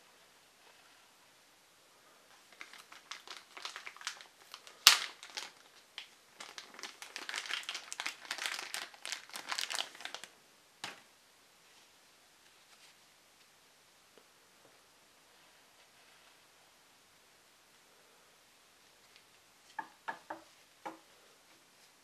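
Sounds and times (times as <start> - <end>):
plastic bag crinkling: 2.4 - 11.0.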